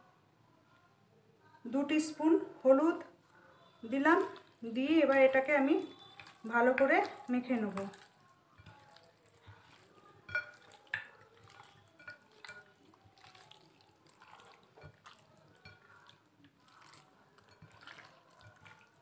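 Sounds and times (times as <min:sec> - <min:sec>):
wet squelching of raw chicken: 0:04.0 - 0:19.0.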